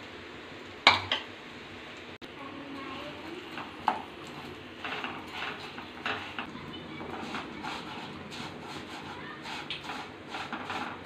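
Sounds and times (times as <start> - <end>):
wooden spatula scraping a pan: 2.8 - 11.0.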